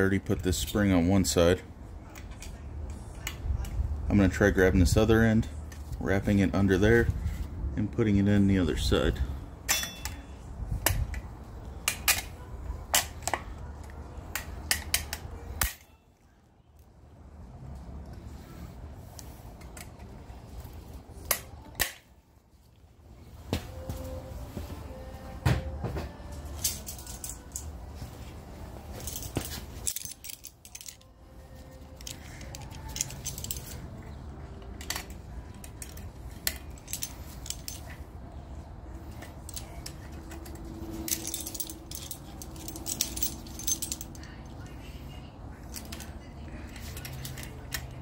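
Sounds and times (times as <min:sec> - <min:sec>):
metallic clicks of pliers and spring: 0:09.7 - 0:11.2, 0:11.8 - 0:13.5, 0:14.3 - 0:16.0.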